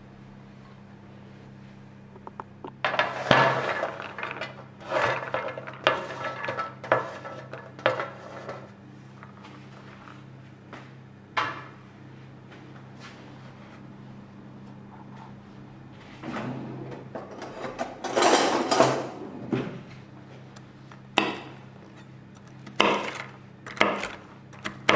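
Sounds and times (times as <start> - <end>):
faint steady hum: 0.0 - 24.9
dishes and utensils clattering: 17.2 - 19.2.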